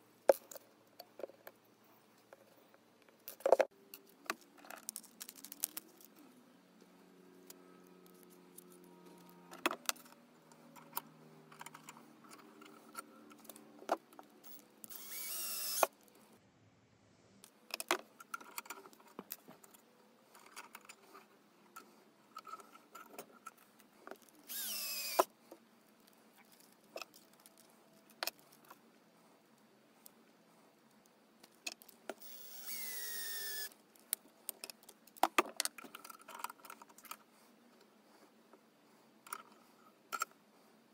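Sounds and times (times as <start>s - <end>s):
wire pieces being handled: 3.2s - 6.4s, 26.0s - 28.8s
cordless drill motor whine: 14.9s - 15.9s, 24.5s - 25.3s, 32.2s - 33.7s.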